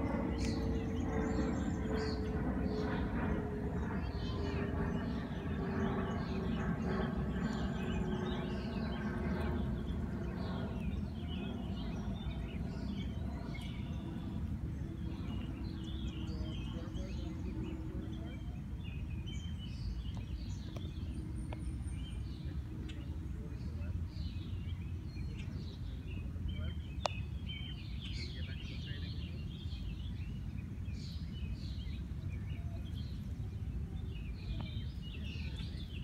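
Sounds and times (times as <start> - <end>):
low outdoor rumble: 0.0 - 27.4
songbirds chirping: 0.0 - 36.0.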